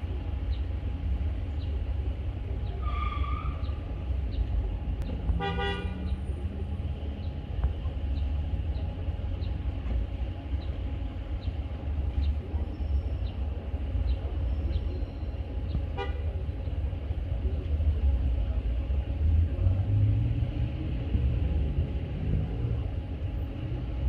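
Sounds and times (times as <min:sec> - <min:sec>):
low rumble of vehicles: 0:00.0 - 0:24.0
car horn toot: 0:05.4 - 0:06.0.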